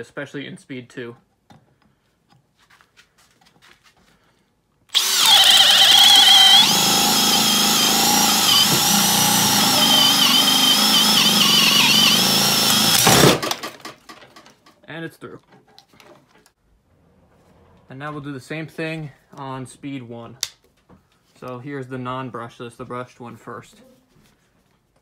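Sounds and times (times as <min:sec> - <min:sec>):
drill boring through wood: 0:04.9 - 0:13.9.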